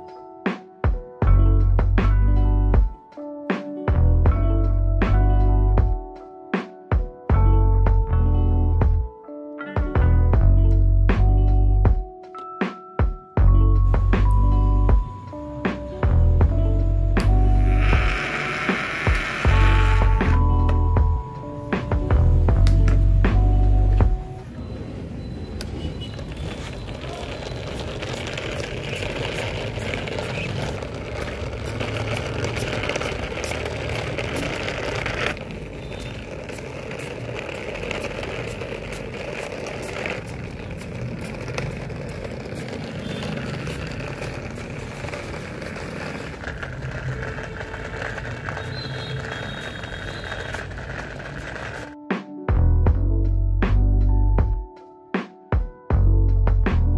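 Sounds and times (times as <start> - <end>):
plastic wheels rattling on concrete: 15.8 - 21.0, 25.7 - 52.0
toy motor whirring: 17.6 - 20.3, 42.6 - 51.9.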